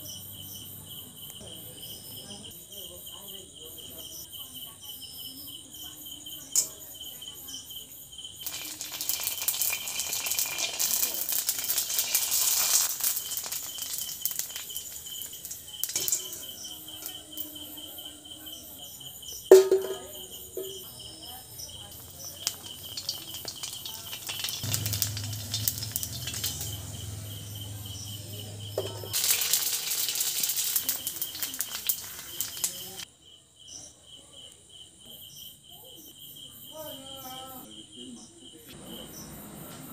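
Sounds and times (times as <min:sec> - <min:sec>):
cricket chirping: 0:00.0 - 0:39.9
food sizzling in hot oil: 0:08.3 - 0:17.4, 0:19.4 - 0:33.1
sharp knock: 0:19.5 - 0:20.8
low hum: 0:24.6 - 0:29.1.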